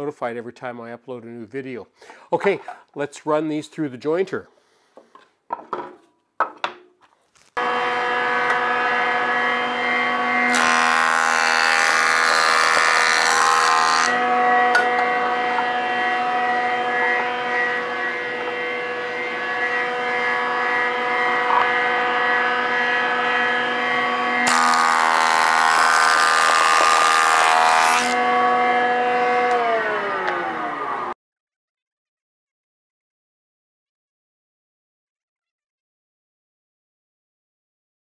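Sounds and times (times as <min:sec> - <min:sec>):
jointer cutting boards: 0:07.6 - 0:31.2
jointer motor whine: 0:07.6 - 0:31.2.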